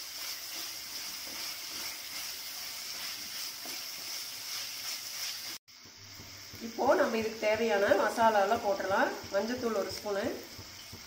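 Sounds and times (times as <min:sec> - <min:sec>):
wooden spatula stirring: 0:00.0 - 0:05.6
vegetables sizzling in hot oil: 0:00.0 - 0:11.0.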